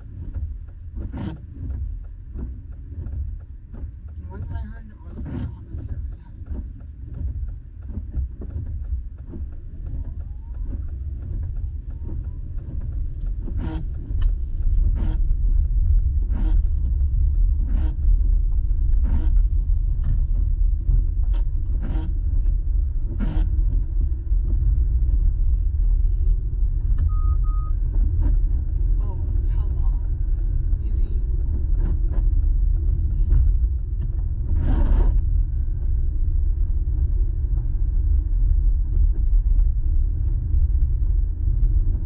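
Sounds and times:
windshield wipers sweeping: 0.0 - 40.8
car road and engine rumble: 0.0 - 42.0
brief beep: 27.0 - 27.8.

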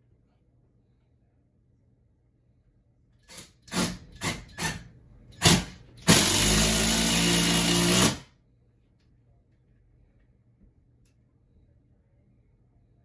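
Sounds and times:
power drill driving a screw: 3.3 - 4.8, 5.4 - 8.2.

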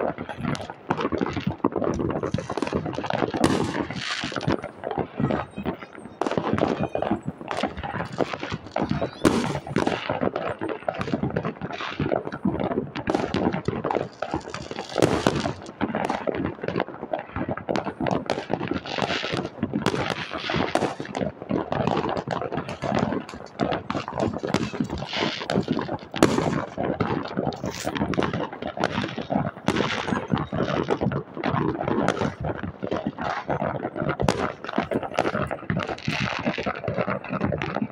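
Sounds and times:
fireworks and firecrackers crackling: 0.0 - 37.9
loud fireworks bangs: 0.0 - 37.9.

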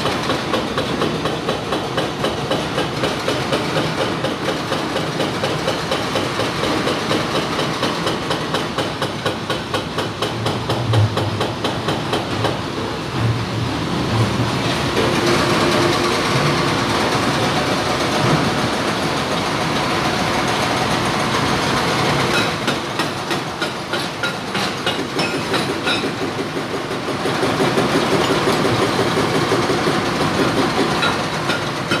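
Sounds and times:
hydraulic rock breaker pounding: 0.0 - 32.0.

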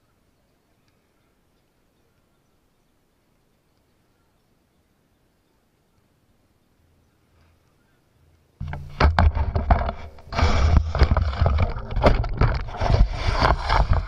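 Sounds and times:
sharp knocks: 8.6 - 14.0.

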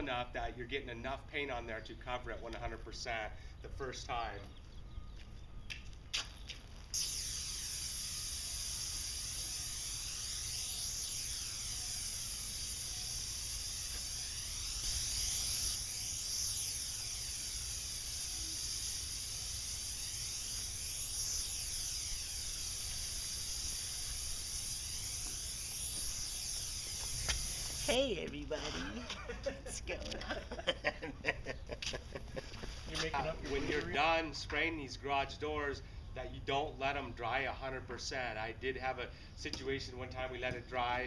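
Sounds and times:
paint sprayer hissing: 6.2 - 34.2.

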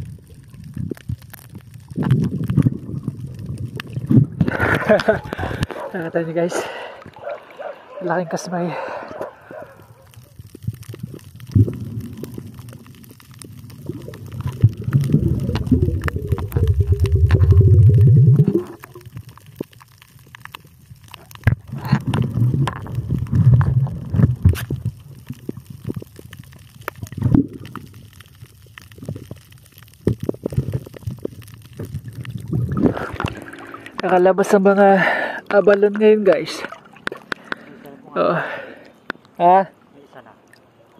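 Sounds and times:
underwater gurgling and bubbling: 0.0 - 5.8, 8.9 - 35.7.

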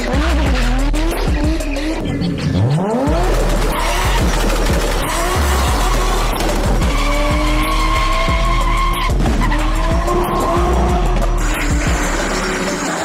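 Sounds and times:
car engine running hard: 0.0 - 13.0
tyres squealing: 3.7 - 13.0.

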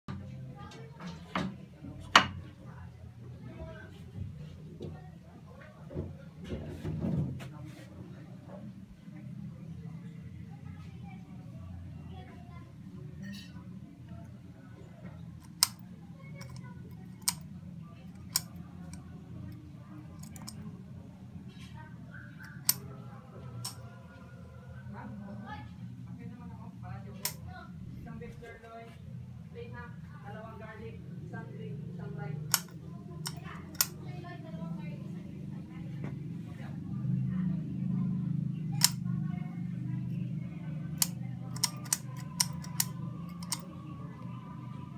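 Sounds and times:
low background hum: 0.1 - 44.9
light switch clicks: 32.5 - 33.9.

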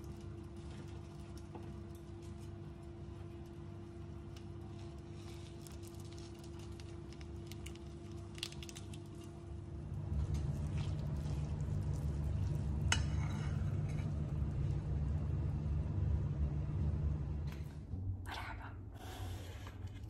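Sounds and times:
noodles squishing while stirred: 0.0 - 14.7.

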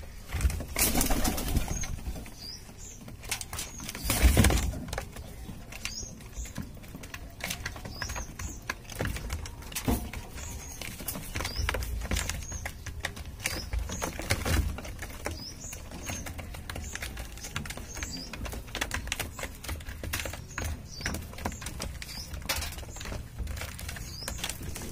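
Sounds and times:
beaks tapping on plastic: 2.4 - 24.9.

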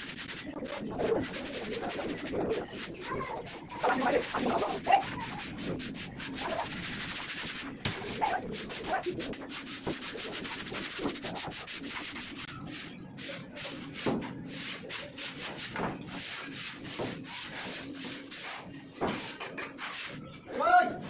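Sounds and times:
hand broom brushing brick wall: 0.0 - 20.3.

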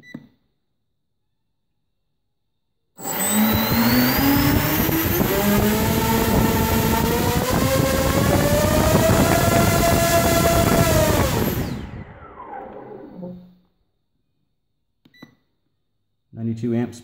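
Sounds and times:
quadcopter motors whining: 3.0 - 13.4.

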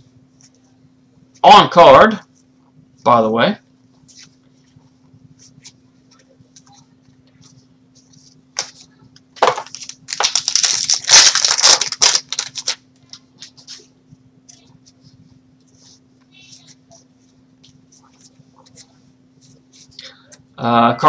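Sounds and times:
faint steady hum: 0.0 - 21.0
wrapper ripping: 9.4 - 12.8
foil wrapper crinkling: 9.4 - 13.8.

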